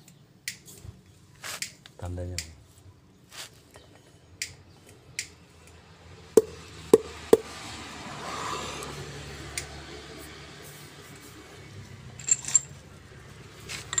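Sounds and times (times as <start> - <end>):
sharp metallic clinks: 12.1 - 12.8, 13.8 - 14.0
metal parts knocking together: 12.2 - 12.8, 13.7 - 14.0.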